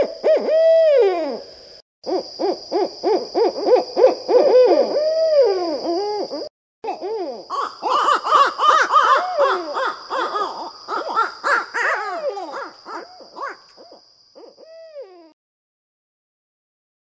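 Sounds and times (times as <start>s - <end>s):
owls hooting and cackling: 2.1s - 15.3s.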